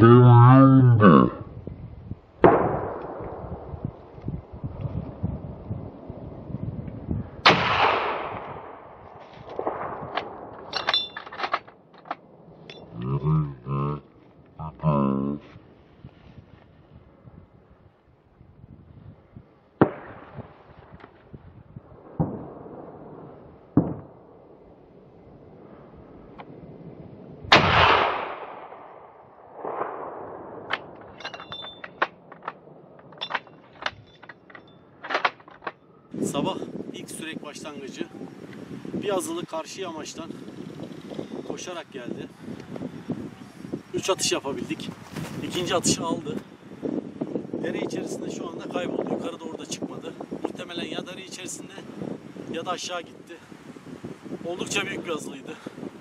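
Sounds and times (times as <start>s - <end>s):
echoing gunshot: 2.4s - 3.8s, 7.4s - 10.5s, 19.8s - 20.6s, 22.0s - 24.4s, 27.5s - 31.0s.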